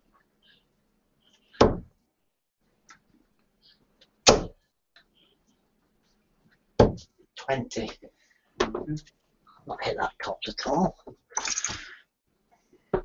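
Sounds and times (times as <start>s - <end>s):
darts thudding into dartboard: 1.6s - 1.9s.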